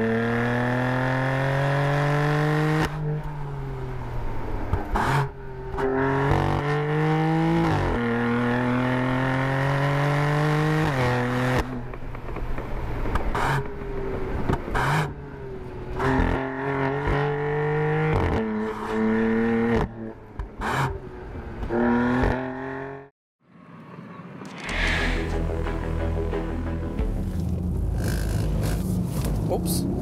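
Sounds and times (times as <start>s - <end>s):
car engine accelerating hard: 0.0s - 11.9s, 26.6s - 30.0s
exhaust cracks: 24.4s - 29.8s.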